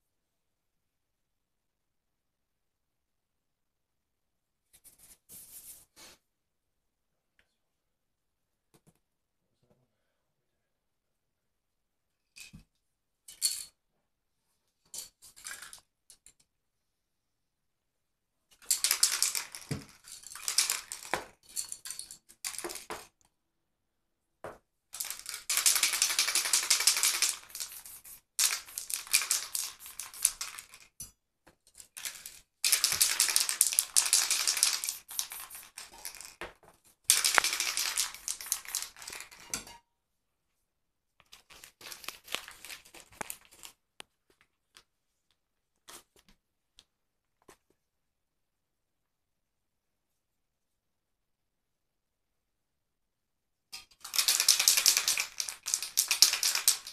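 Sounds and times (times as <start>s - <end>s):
spray paint can hissing: 25.0s - 30.6s, 32.6s - 35.9s.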